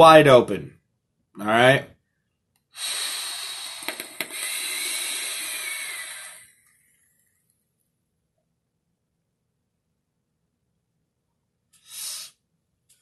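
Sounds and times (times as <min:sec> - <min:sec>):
air hissing through vape tank: 0:02.8 - 0:06.6, 0:11.8 - 0:12.4.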